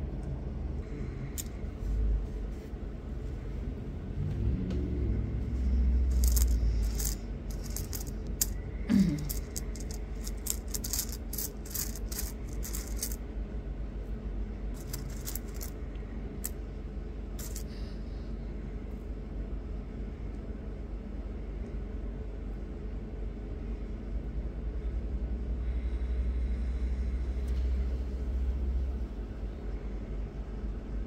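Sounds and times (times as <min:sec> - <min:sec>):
low rumble: 0:00.0 - 0:16.4
stones clicking and clinking: 0:06.0 - 0:13.2, 0:14.8 - 0:15.8, 0:17.4 - 0:17.7.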